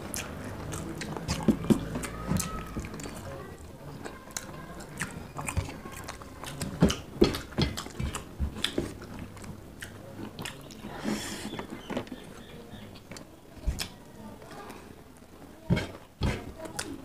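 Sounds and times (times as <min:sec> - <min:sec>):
chewing and lip smacks: 0:00.0 - 0:10.9.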